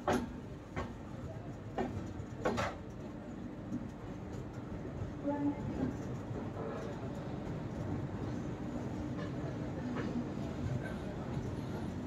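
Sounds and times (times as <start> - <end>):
train running noise: 0.0 - 12.0.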